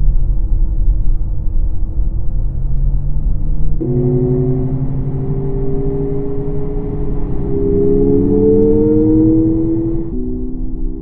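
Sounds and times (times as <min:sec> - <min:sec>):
synthetic car engine note: 0:03.8 - 0:10.9.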